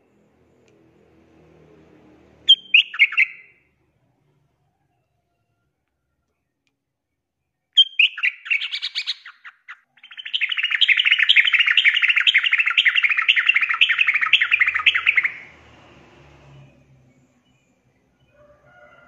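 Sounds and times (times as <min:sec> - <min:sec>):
bird chirps: 0:02.5 - 0:03.7, 0:07.4 - 0:15.6.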